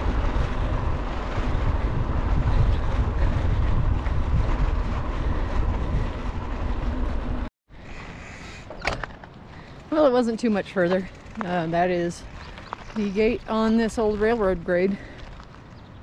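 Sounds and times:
bike tyres rolling on gravel: 0:00.0 - 0:08.4, 0:09.3 - 0:16.0
wind rushing over microphone: 0:00.0 - 0:09.1.

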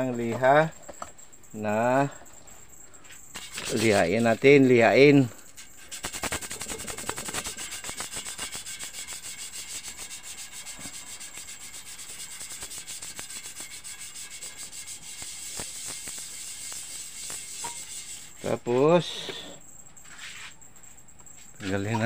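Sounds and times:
sandpaper rubbing on glass: 0:03.3 - 0:04.8, 0:05.5 - 0:18.9.

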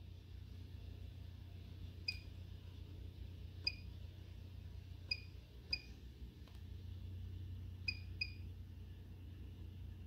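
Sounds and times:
short high key beeps: 0:07.9 - 0:08.4.

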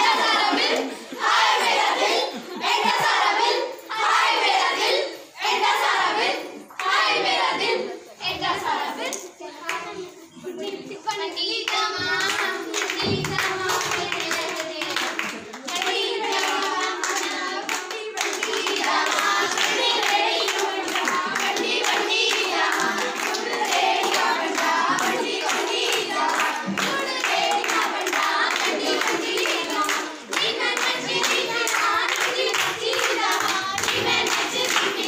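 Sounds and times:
girls singing folk song: 0:00.0 - 0:35.0
hands clapping in rhythm: 0:06.2 - 0:07.2, 0:08.6 - 0:10.0, 0:10.6 - 0:35.0.

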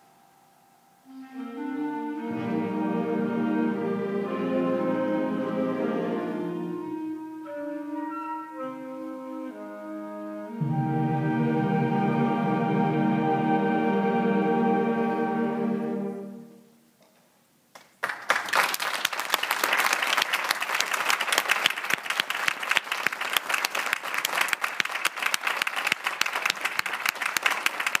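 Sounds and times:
audience applause: 0:17.8 - 0:28.0.

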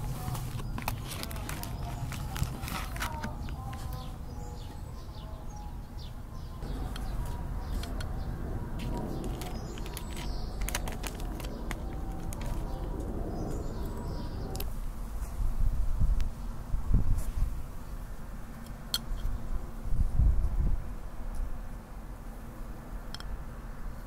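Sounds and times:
plastic film crinkling: 0:00.0 - 0:04.0, 0:08.8 - 0:13.1
birds chirping: 0:00.0 - 0:14.7.

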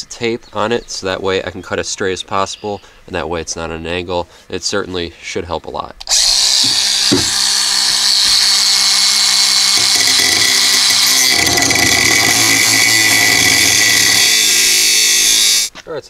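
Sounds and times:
angle grinder cutting metal pipe: 0:06.0 - 0:15.7.

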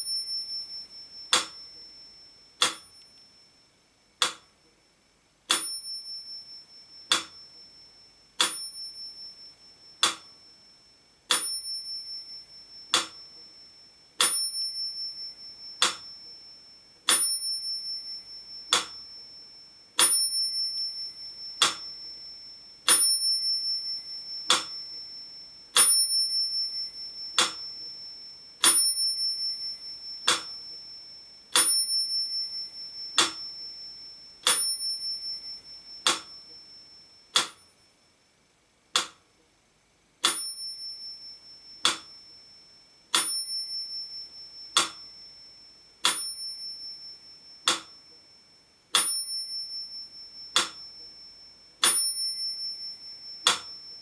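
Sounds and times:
metronome ticking: 0:00.0 - 0:03.3, 0:04.2 - 0:04.7, 0:05.5 - 0:07.7, 0:08.4 - 0:09.4, 0:10.0 - 0:10.4, 0:11.3 - 0:13.6, 0:14.2 - 0:16.5, 0:17.1 - 0:19.2, 0:20.0 - 0:22.3, 0:22.9 - 0:25.2, 0:25.8 - 0:28.0, 0:28.6 - 0:31.0, 0:31.6 - 0:33.7, 0:34.4 - 0:37.7, 0:39.0 - 0:39.2, 0:40.2 - 0:42.2, 0:43.1 - 0:45.2, 0:47.5 - 0:48.2, 0:48.9 - 0:51.2, 0:51.8 - 0:54.0
metronome bell ringing: 0:00.0 - 0:03.7, 0:05.5 - 0:38.0, 0:40.3 - 0:54.0.

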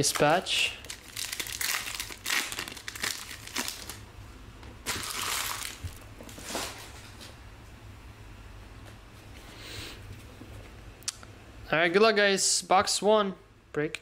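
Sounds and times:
plastic wrapper crinkling: 0:00.0 - 0:04.0, 0:04.8 - 0:06.7.

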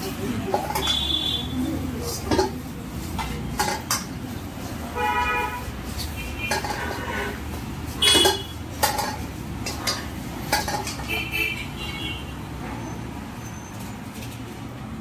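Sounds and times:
metal ladle clanking on wok: 0:00.0 - 0:04.2, 0:05.9 - 0:11.7.

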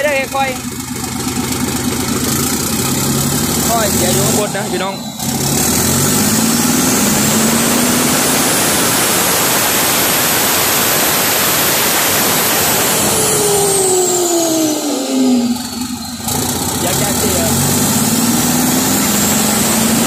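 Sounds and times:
truck diesel engine revving: 0:00.0 - 0:20.0
turbo whistle: 0:04.0 - 0:07.5.

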